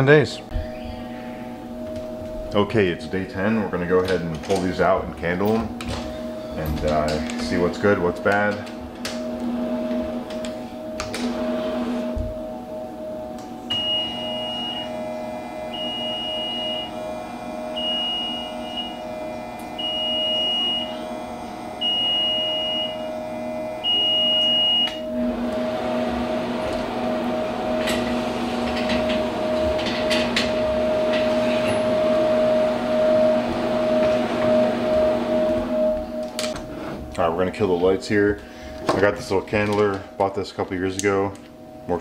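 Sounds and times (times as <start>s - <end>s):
incubator fan hum: 0.0s - 42.0s
incubator door opening: 24.4s - 37.1s.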